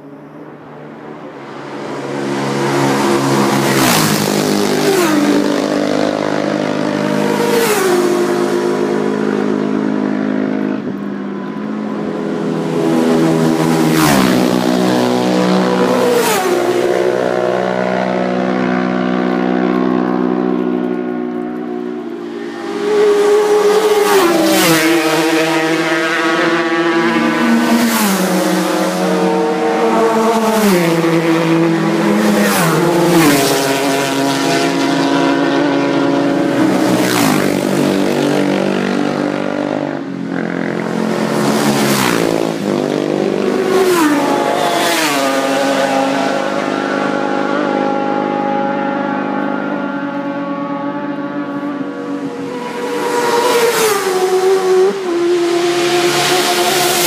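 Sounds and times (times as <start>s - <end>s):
racing motorcycles passing: 0.0s - 57.0s.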